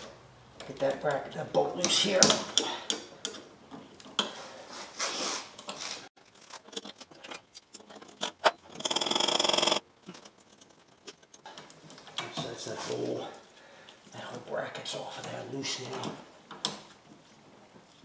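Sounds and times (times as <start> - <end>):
loud buzzing rattle: 8.7 - 9.8.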